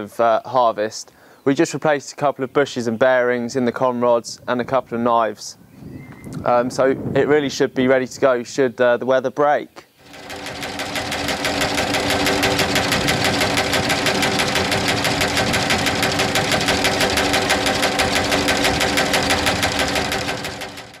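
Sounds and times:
reciprocating cutter blade clatter: 10.0 - 21.0.

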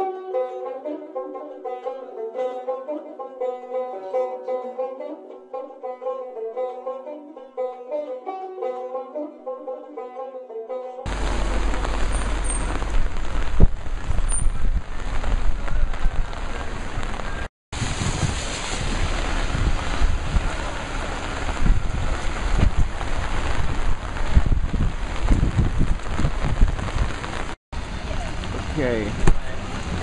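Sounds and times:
heavy rain hissing: 11.1 - 30.0
wind buffeting microphone: 11.1 - 30.0.

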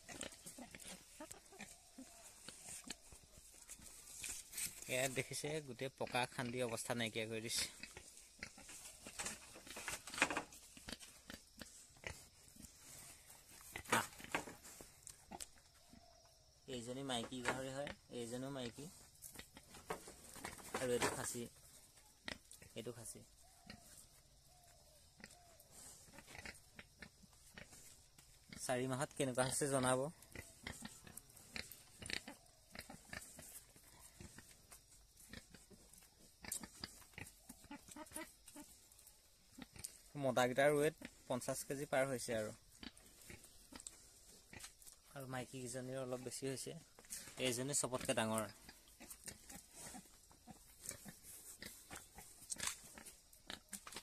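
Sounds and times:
pigs scraping on concrete: 7.5 - 15.5, 18.8 - 21.5, 25.2 - 28.6, 30.2 - 39.0, 42.8 - 45.1, 46.9 - 54.0.

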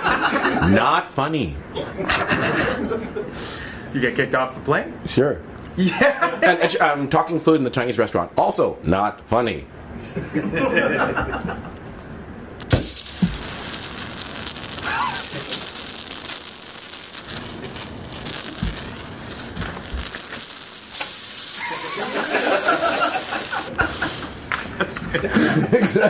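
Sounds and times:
man imitating sizzling: 12.6 - 23.7.

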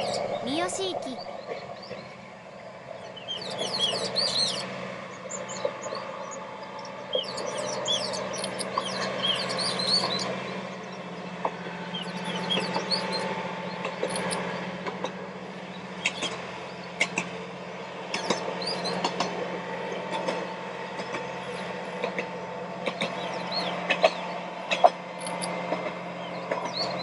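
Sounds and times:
small birds chirping: 0.0 - 11.3, 11.9 - 14.7
distant train engine hum: 0.0 - 27.0.

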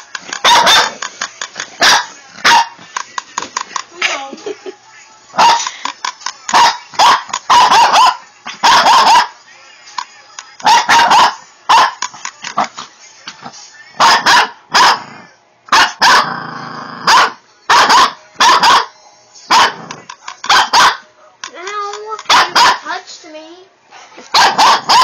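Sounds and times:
small dog barking: 0.4 - 1.0, 1.8 - 2.7, 6.5 - 9.3, 10.6 - 12.0, 14.0 - 15.0, 15.7 - 16.3, 17.1 - 18.9, 19.5 - 19.8, 20.5 - 21.0, 22.3 - 22.8, 24.3 - 25.0.

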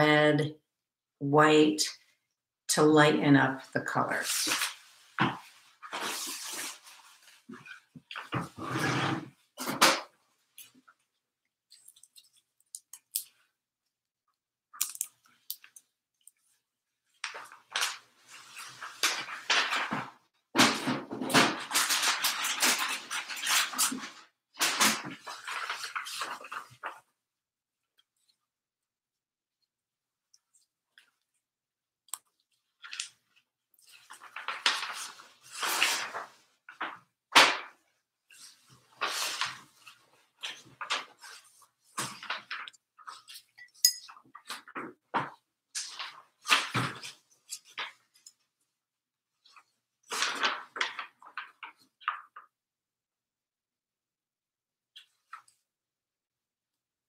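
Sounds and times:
rustling and scraping: 4.3 - 10.8
paint tubes clicking and crinkling: 9.9 - 20.1, 32.0 - 48.5, 49.4 - 52.5.

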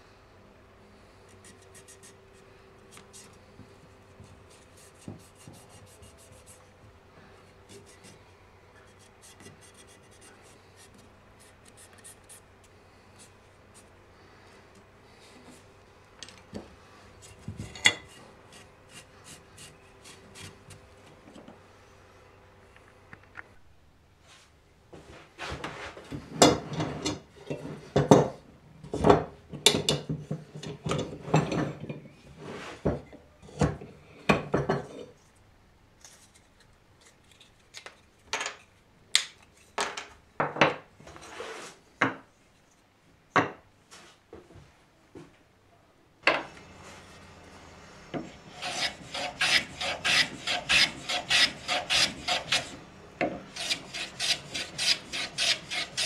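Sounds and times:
steady hum: 46.3 - 56.0
abrasive tool rasping on wood: 48.2 - 52.8, 53.5 - 56.0.

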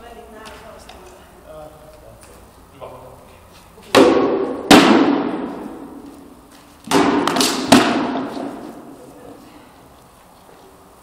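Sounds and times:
weapon blows on wooden shields: 3.9 - 5.9, 6.9 - 8.7.

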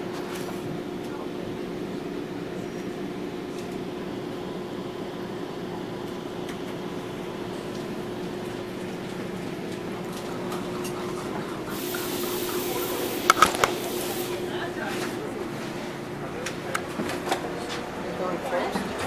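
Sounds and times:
train car hum and rumble: 0.0 - 19.0.

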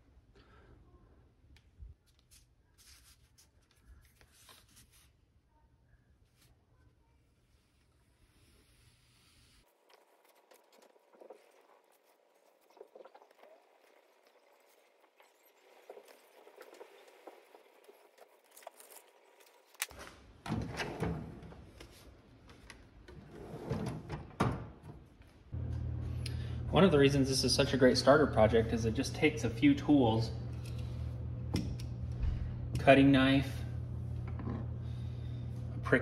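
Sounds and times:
low background hum: 12.0 - 36.0
metal drawer sliding open: 20.4 - 21.6, 23.1 - 24.7.

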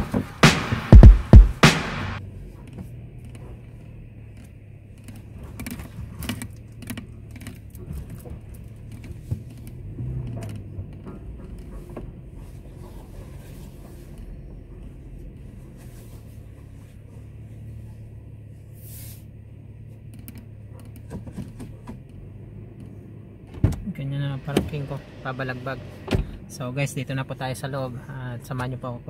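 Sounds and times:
car engine and road noise: 0.0 - 29.0
small clicks and rattles: 2.6 - 12.0.

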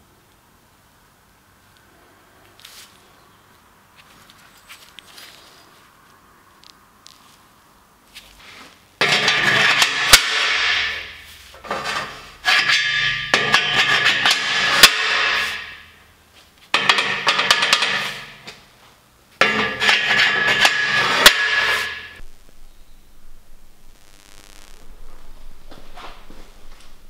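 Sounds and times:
metal scraping and clanking: 8.4 - 16.0, 16.7 - 18.6, 19.4 - 22.2.

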